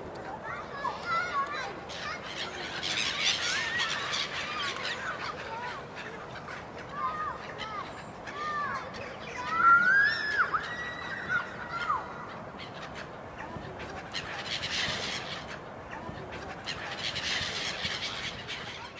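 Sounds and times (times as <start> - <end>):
outdoor rush of noise: 0.0 - 18.9
gulls calling: 0.2 - 18.9.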